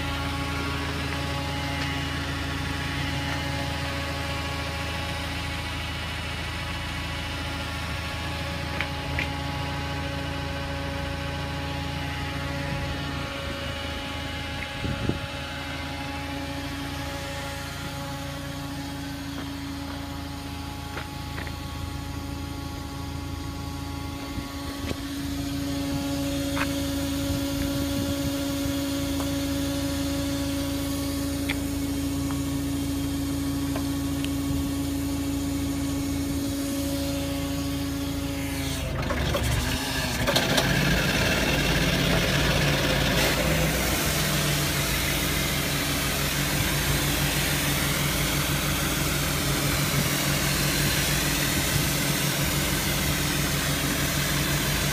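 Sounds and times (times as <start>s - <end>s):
diesel engine running: 0.0s - 54.9s
high-pressure water jet hissing: 41.1s - 54.9s.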